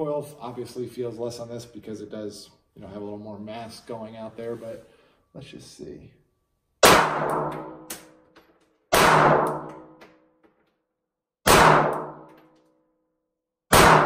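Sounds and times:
pistol shots: 6.8s - 8.2s, 8.9s - 10.0s, 11.4s - 12.4s, 13.7s - 14.0s.

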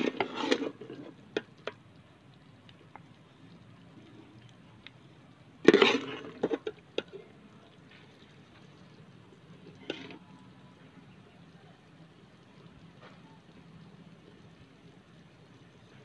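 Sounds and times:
spoon scraping gravy in pot: 0.0s - 1.8s, 5.6s - 7.3s, 9.6s - 10.2s.

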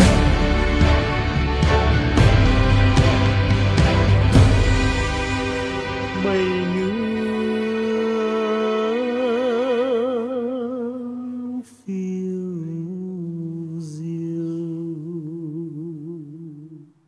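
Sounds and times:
slow melodic music with vibrato: 0.0s - 11.5s.

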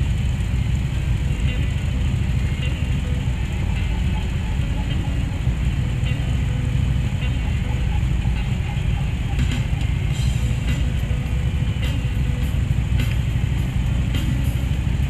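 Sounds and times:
motorcycle engine rumble: 0.0s - 15.0s
road noise: 0.0s - 15.0s
rushing wind: 0.0s - 15.0s.

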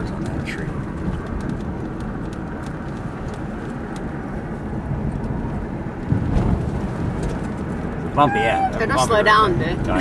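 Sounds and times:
car engine and tyre rumble: 0.0s - 10.0s.

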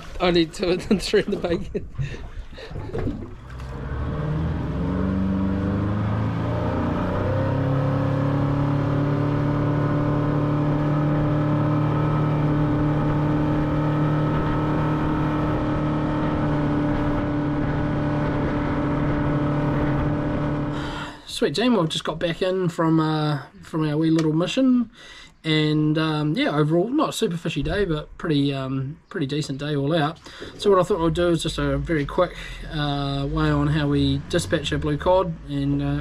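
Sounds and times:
outboard motor droning: 2.2s - 21.1s.

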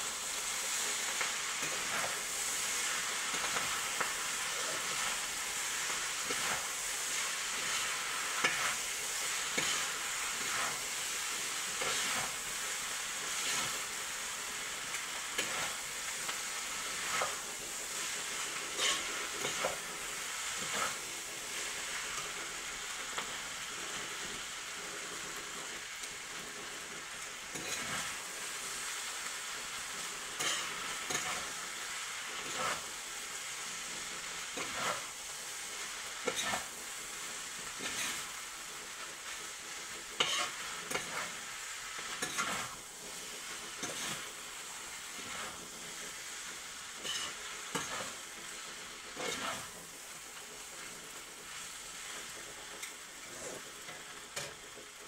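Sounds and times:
noodles sizzling in a pan: 0.0s - 55.0s
metal tongs scraping a pan: 1.2s - 2.2s, 6.2s - 8.8s, 9.5s - 10.8s, 15.3s - 15.8s, 18.7s - 19.9s, 20.6s - 21.1s, 27.5s - 28.2s, 30.4s - 31.6s, 32.4s - 32.9s, 34.6s - 35.1s, 36.2s - 36.7s, 37.8s - 38.3s, 40.2s - 41.4s, 42.0s - 42.8s, 43.5s - 44.3s, 47.0s - 48.2s, 49.2s - 49.7s.

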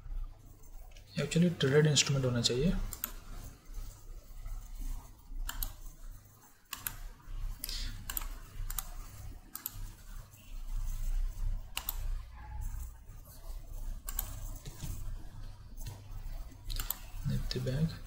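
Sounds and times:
low steady background hum: 0.0s - 18.0s
computer mouse clicking: 2.8s - 10.2s, 10.9s - 15.2s, 15.8s - 17.2s.

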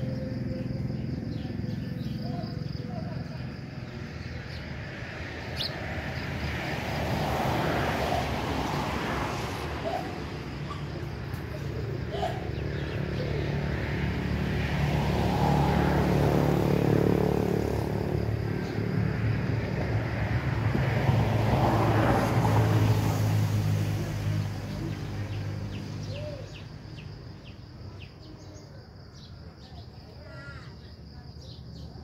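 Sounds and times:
small birds chirping: 0.0s - 6.5s, 24.6s - 32.0s
motor vehicles passing: 0.0s - 32.0s.

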